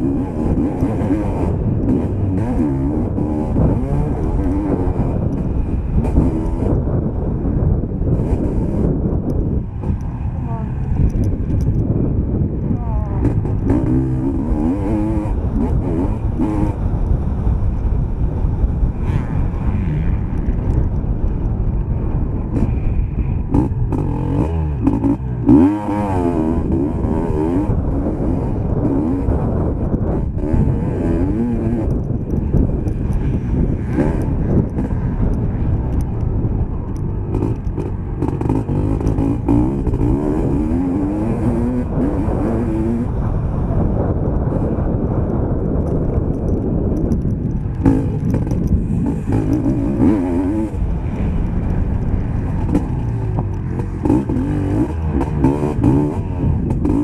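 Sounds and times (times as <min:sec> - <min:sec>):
motocross bike engine revving: 0:00.0 - 0:07.1, 0:13.1 - 0:16.8, 0:19.0 - 0:20.6, 0:23.5 - 0:36.0, 0:37.0 - 0:43.2, 0:47.0 - 0:57.0.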